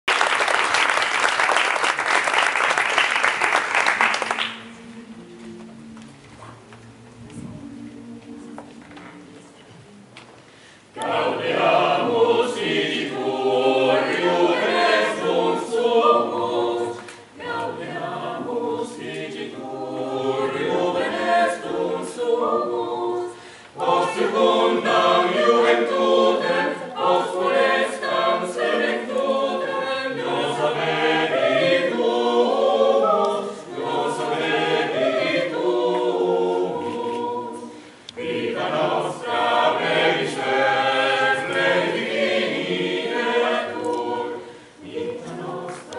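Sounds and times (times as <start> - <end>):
choir singing a cappella: 10.8 - 45.9.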